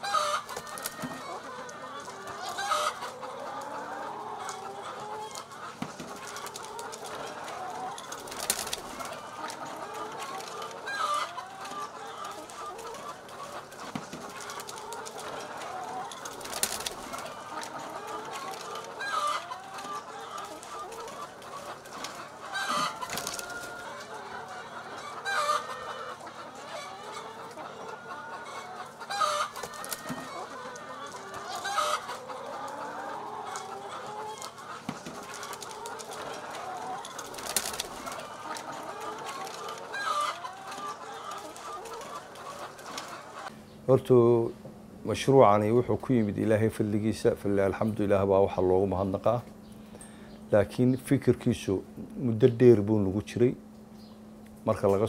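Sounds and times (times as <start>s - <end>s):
loud hen call: 0.0s - 43.5s
hens clucking: 0.0s - 55.0s.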